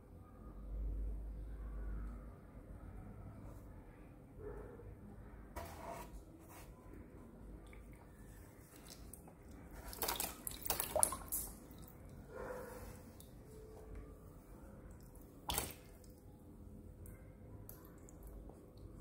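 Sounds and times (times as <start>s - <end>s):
water splashing and dripping: 8.7s - 12.1s, 14.9s - 16.2s.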